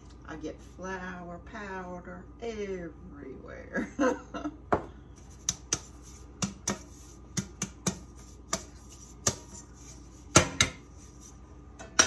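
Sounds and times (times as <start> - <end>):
flour shaker tapping metal pan: 5.4 - 12.0.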